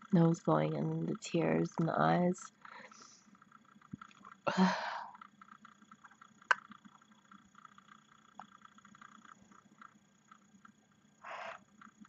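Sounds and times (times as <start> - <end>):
faint chirping: 0.6 - 12.0
person yawning breath: 4.5 - 5.2.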